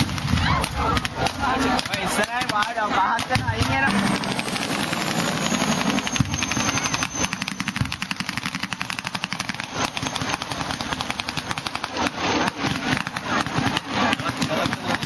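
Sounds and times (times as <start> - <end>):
rapid automatic gunfire: 0.0 - 15.0
faint high whine: 3.8 - 8.3.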